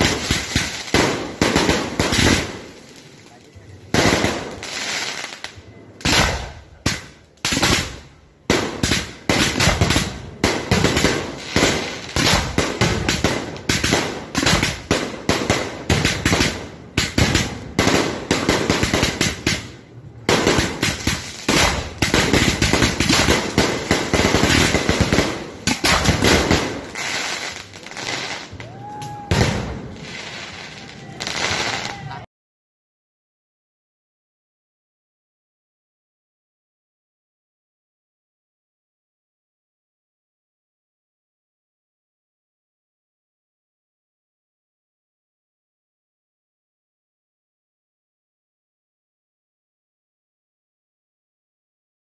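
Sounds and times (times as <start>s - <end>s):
fireworks bursting: 0.0s - 32.2s.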